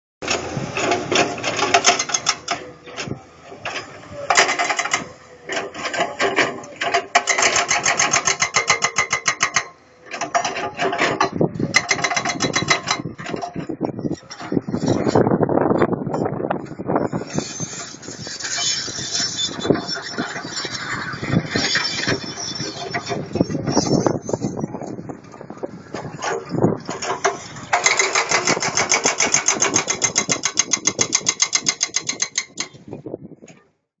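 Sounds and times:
excavator diesel engine clatter: 0.2 - 33.7
rapid mechanical hammering: 6.3 - 10.3, 26.8 - 32.8.

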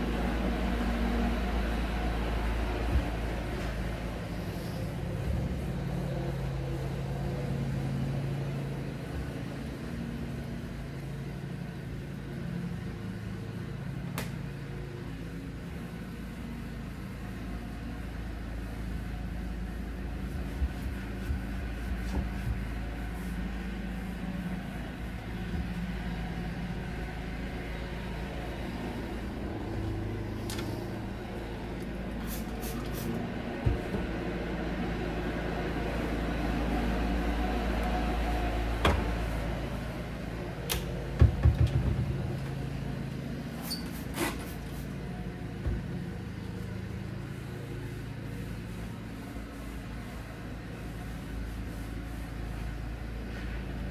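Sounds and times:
steady low hum: 0.0 - 53.9
taps and clicks on cabinet doors: 40.7 - 42.1.

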